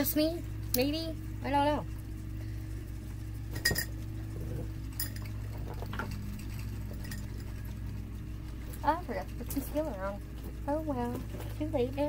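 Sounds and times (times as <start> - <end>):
steady low hum: 0.0 - 12.0
makeup containers clinking: 3.5 - 4.0.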